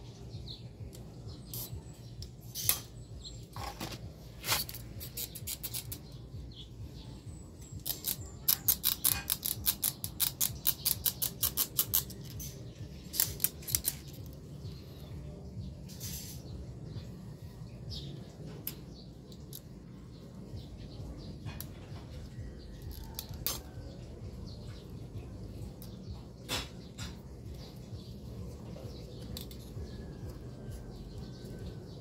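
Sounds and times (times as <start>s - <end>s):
hand tool clicking on plastic: 7.8s - 12.4s.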